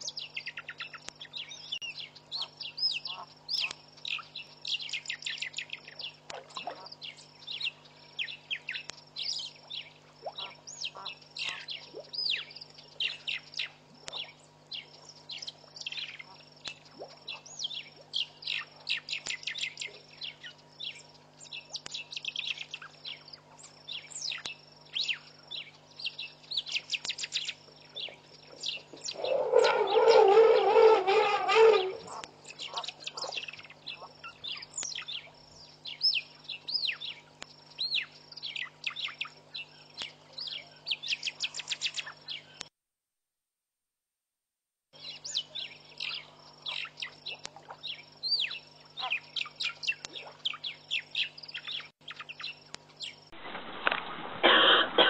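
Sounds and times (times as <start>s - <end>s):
faint low hum: 0.0s - 42.7s
many birds chirping: 0.0s - 42.7s, 45.0s - 53.3s.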